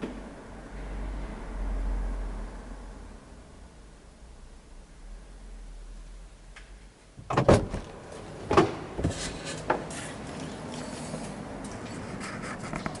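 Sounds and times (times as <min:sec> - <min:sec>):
car door opening clunk: 0:07.2 - 0:09.3.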